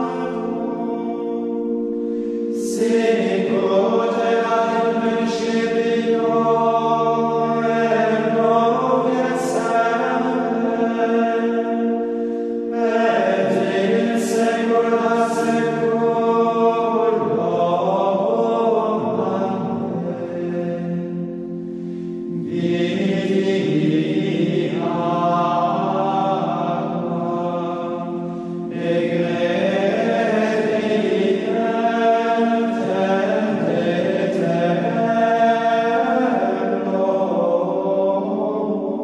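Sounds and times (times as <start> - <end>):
choir singing chant: 0.0 - 39.0
low held notes: 0.0 - 39.0.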